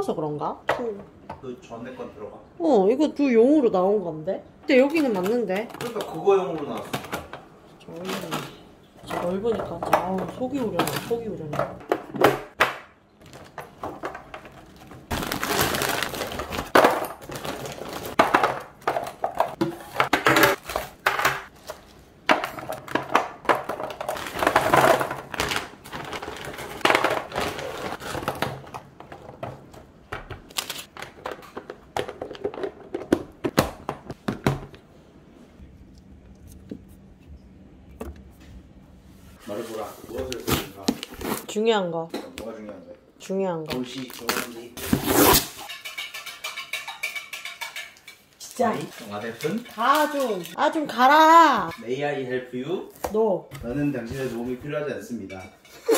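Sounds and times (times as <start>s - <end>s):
plastic packaging crinkling: 14.6s - 18.3s.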